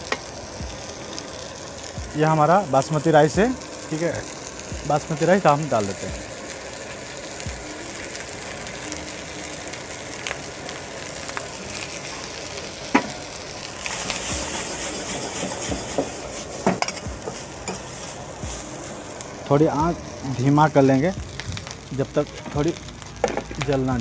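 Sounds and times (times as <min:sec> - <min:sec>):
food sizzling in a wok: 0:00.0 - 0:24.0.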